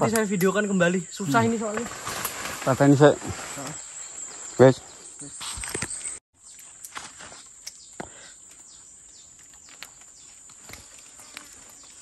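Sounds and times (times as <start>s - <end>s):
high-pitched insect drone: 0.0s - 6.2s
twigs snapping and leaves rustling: 1.4s - 3.8s, 5.4s - 12.0s.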